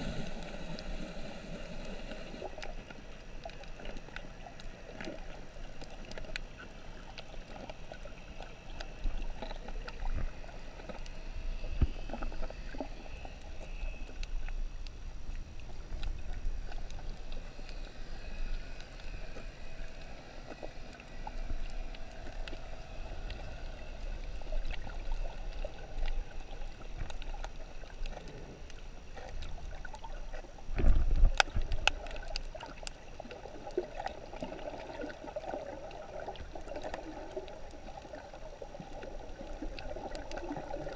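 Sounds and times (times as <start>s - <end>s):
low water surge: 0.0s - 6.1s
muffled underwater water rush: 0.0s - 40.9s
sharp underwater clicks: 30.3s - 33.0s.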